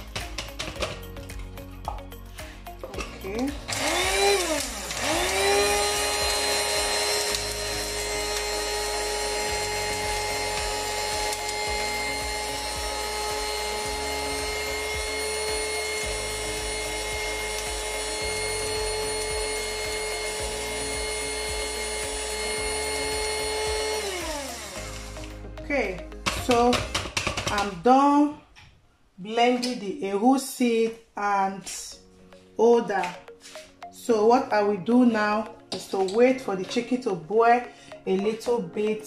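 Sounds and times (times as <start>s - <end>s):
electric grinder motor whine: 3.0s - 25.4s.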